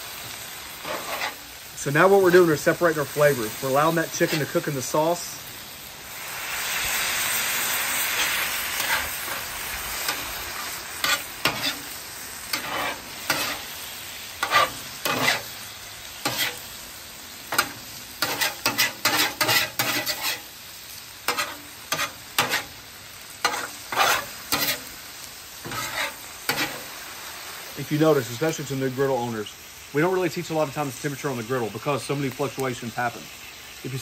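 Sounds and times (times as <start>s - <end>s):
chicken sizzling on griddle: 0.0s - 34.0s
metal spatula scraping griddle: 0.7s - 5.2s, 8.0s - 16.8s, 17.5s - 26.9s.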